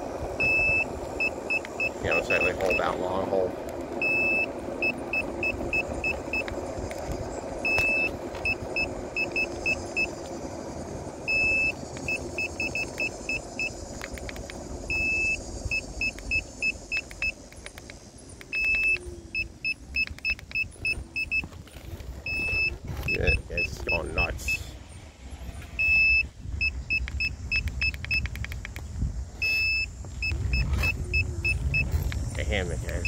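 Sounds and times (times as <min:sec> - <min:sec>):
electric scooter alarm beeping: 0:00.0 - 0:21.6, 0:22.2 - 0:24.7, 0:25.8 - 0:28.8, 0:29.4 - 0:33.0
clicks: 0:13.9 - 0:14.6, 0:19.9 - 0:21.6, 0:26.9 - 0:28.9.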